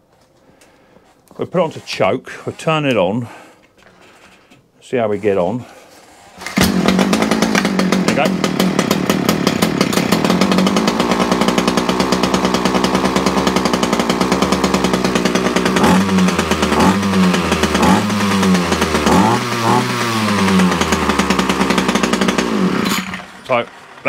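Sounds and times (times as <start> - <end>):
strimmer engine idling: 6.4 - 24.0
strimmer engine revving: 6.4 - 24.0.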